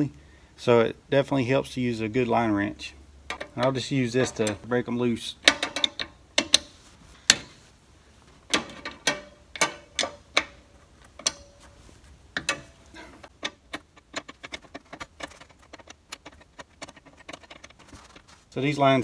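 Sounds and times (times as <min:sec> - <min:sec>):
metal wrench clicking and knocking: 0:03.3 - 0:04.7, 0:05.4 - 0:07.5, 0:08.4 - 0:11.8, 0:12.4 - 0:18.2.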